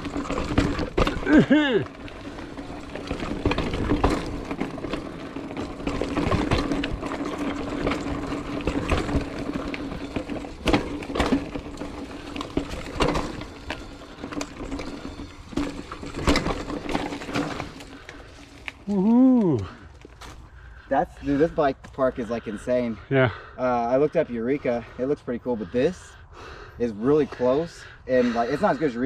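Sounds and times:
bike knocking and rattling: 0.0s - 22.9s
bike tyres rolling over dirt: 0.0s - 22.9s.

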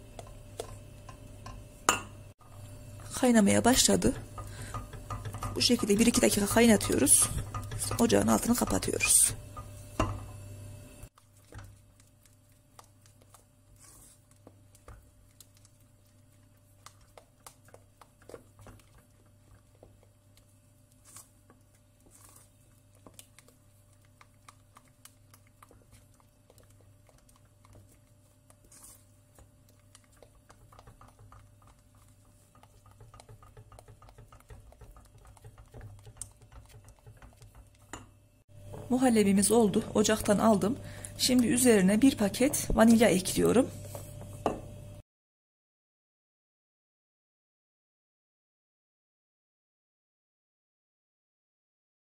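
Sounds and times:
spatula scraping a metal pot: 3.0s - 10.4s, 25.7s - 38.0s.

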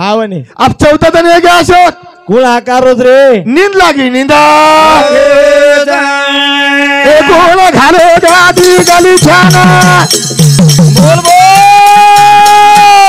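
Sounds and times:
rhythmic rattling percussion: 7.7s - 13.0s.

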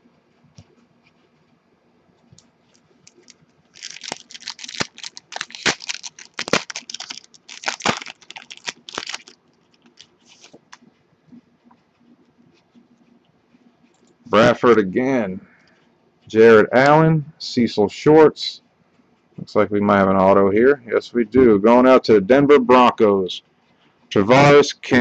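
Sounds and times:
faint handling ticks: 2.3s - 3.4s
foil wrapper tearing and crinkling: 3.0s - 10.6s.

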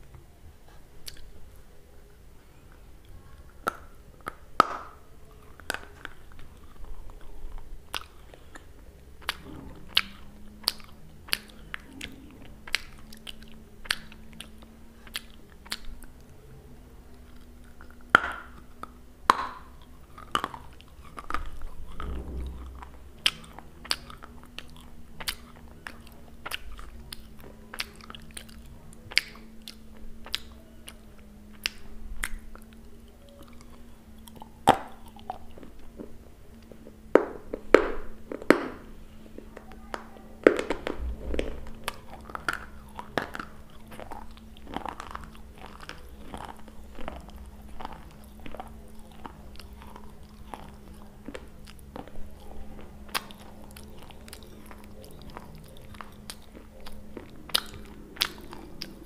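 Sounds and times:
crunching brittle clay: 17.2s - 59.0s.

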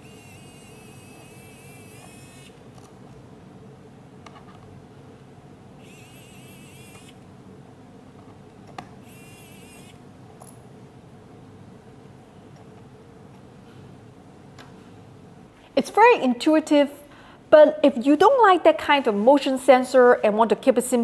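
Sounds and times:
electric screwdriver motor whirring: 0.0s - 2.6s, 5.8s - 7.2s, 9.0s - 10.0s.

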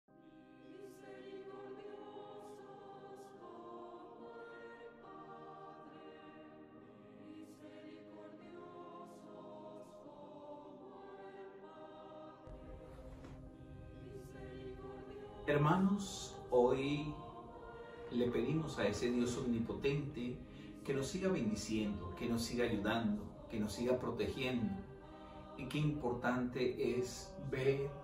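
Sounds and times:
choir singing slow chords: 0.1s - 28.0s
low rumble: 12.5s - 20.1s.

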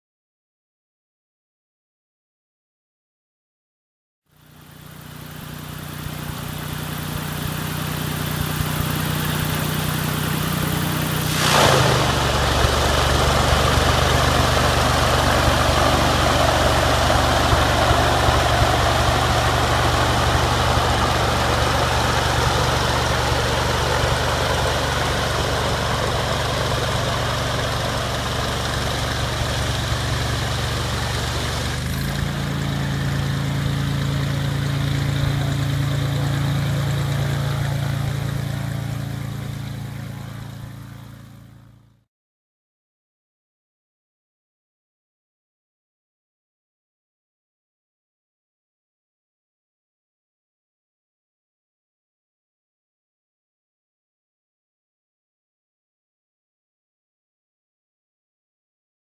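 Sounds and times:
floatplane engine running: 4.3s - 42.0s
quick falling whoosh: 11.2s - 12.8s.

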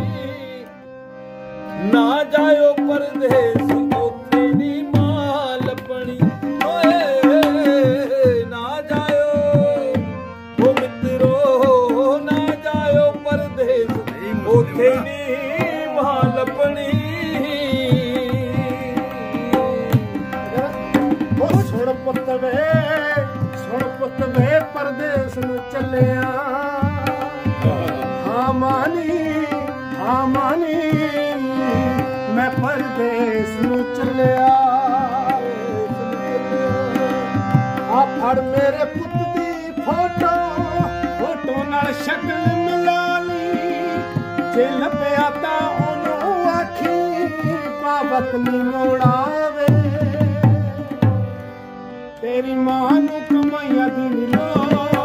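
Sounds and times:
tabla drums: 0.0s - 0.6s, 1.6s - 55.0s
harmonium chords: 0.0s - 55.0s
man singing: 0.0s - 55.0s.

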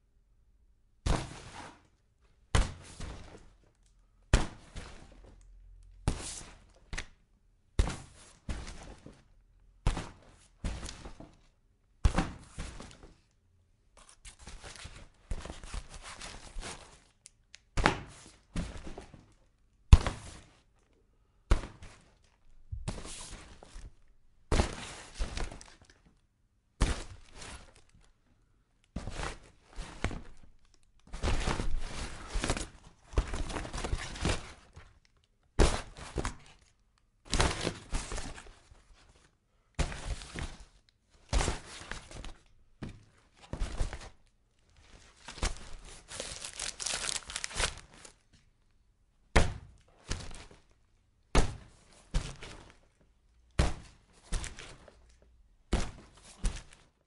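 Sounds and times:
cardboard being struck: 12.0s - 12.8s, 51.3s - 52.5s, 53.6s - 54.6s.

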